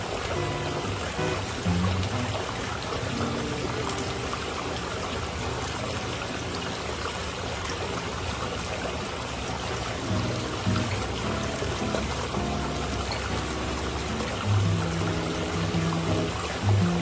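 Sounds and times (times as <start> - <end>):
faint soft music: 0.0 - 6.4, 9.9 - 17.0
water trickling: 0.0 - 17.0.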